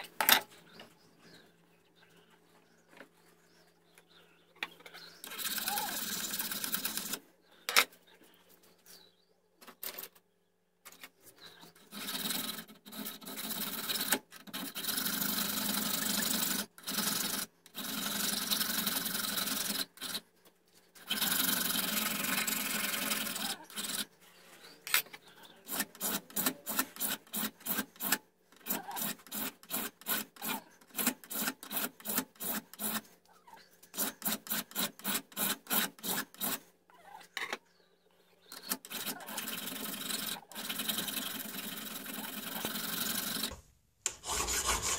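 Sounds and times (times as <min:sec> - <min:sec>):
hand file rasping on metal: 0:05.2 - 0:07.2, 0:21.0 - 0:24.1, 0:25.5 - 0:33.1, 0:33.9 - 0:36.6, 0:44.1 - 0:44.9.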